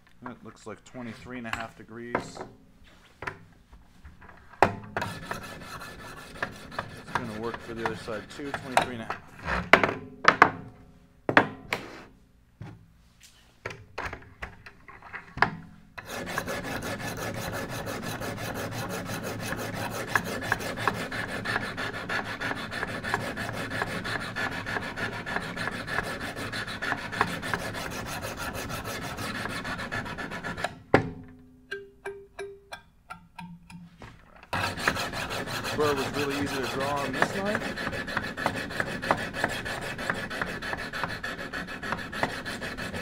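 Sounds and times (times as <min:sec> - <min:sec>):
sharpening stone rasping on knife blade: 0:34.6 - 0:43.0.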